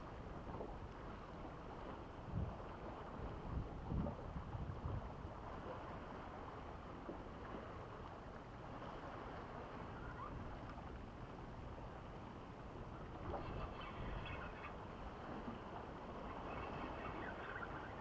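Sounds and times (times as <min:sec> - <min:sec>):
wind buffeting microphone: 0:02.2 - 0:06.2, 0:09.0 - 0:18.0.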